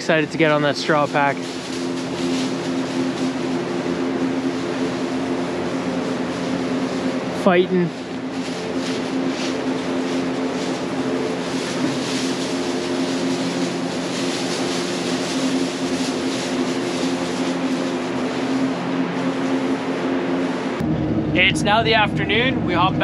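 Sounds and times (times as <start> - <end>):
machine hum: 0.0 - 23.0
cows stepping in straw: 0.4 - 6.9, 8.0 - 19.7.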